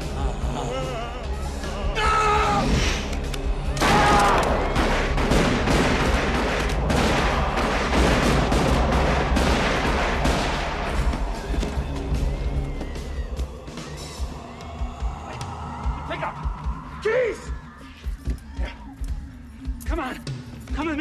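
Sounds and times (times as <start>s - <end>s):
men yelling: 0.0s - 2.8s
rapid gunfire: 3.8s - 11.2s.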